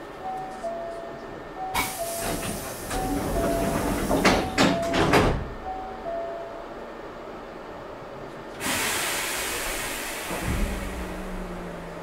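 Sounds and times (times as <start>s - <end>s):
pneumatic door air hiss: 1.8s - 4.6s, 8.6s - 11.5s
sliding doors thudding shut: 1.8s - 5.5s, 10.2s - 11.4s.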